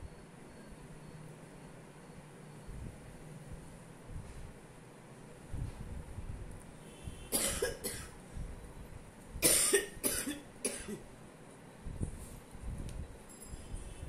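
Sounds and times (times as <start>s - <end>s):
person coughing: 7.3s - 8.1s, 9.4s - 11.0s.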